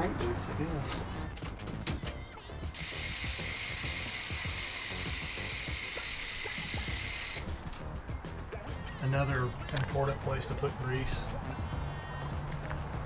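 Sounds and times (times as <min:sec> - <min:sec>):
bicycle freewheel ratcheting buzz: 0:02.4 - 0:07.4.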